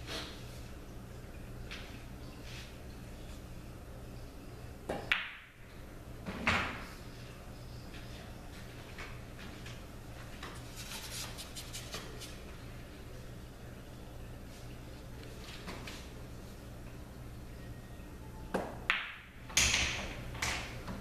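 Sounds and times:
pool balls clacking: 4.8 - 5.6
cue striking ball: 18.5 - 20.7.

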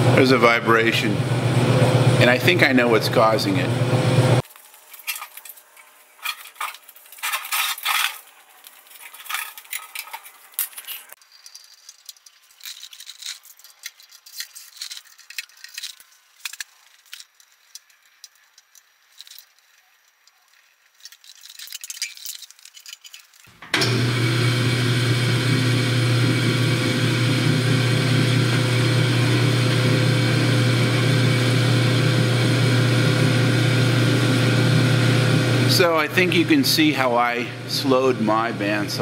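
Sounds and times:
metal cover clinking and rattling: 6.2 - 17.2.

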